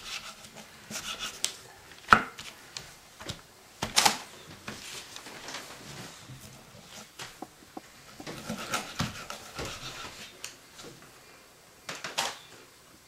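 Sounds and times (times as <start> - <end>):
knife cutting fish: 8.2 - 10.2.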